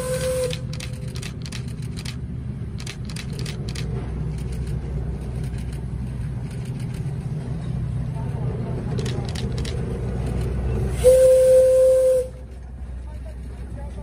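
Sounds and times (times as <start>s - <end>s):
steam whistle: 0.0s - 0.7s, 10.9s - 12.4s
steam locomotive rumble: 0.0s - 14.0s
quick irregular clicks: 0.4s - 2.2s, 2.8s - 7.2s, 8.9s - 10.4s.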